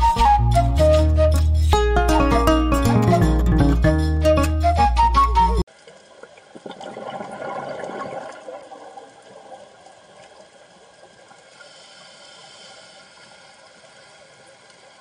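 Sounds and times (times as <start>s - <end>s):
background music: 0.0s - 5.6s
underwater water hiss: 11.4s - 15.0s.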